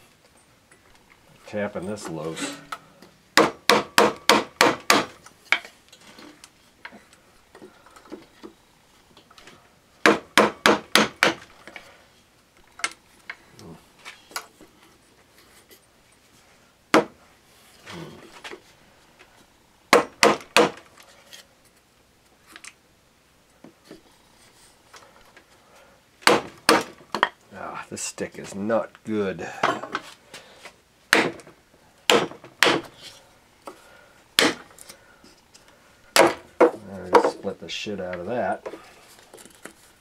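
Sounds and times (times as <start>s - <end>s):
hammer striking wooden stick: 3.4s - 5.1s, 10.0s - 11.4s.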